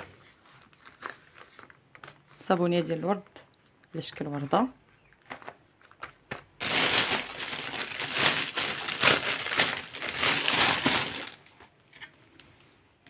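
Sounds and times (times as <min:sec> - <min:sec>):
plastic wrapping crinkling: 0:00.6 - 0:02.3, 0:05.1 - 0:11.6.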